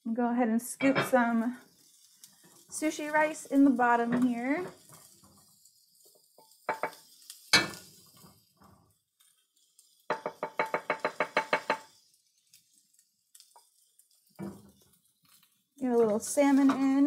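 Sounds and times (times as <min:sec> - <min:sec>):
wooden spoon tapping bowl: 0:10.1 - 0:11.9.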